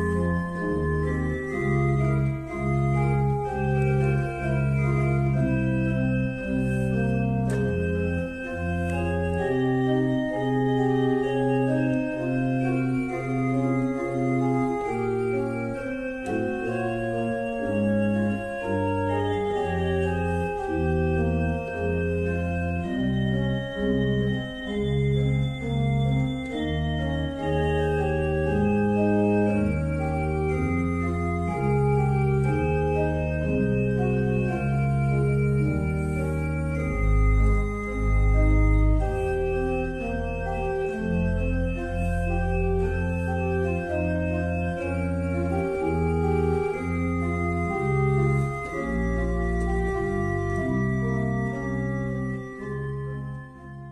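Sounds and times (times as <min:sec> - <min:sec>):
organ music: 0:00.0 - 0:53.9.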